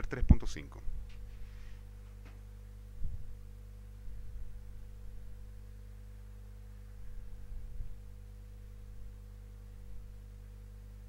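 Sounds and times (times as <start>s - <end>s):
steady low hum: 0.0s - 11.0s
soft low thumps: 2.1s - 3.5s.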